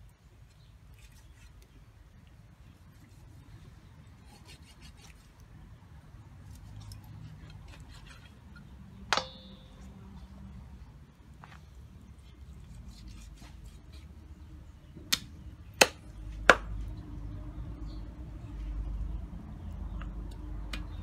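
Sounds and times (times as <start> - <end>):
sharp cleaver chop: 15.1 - 16.7.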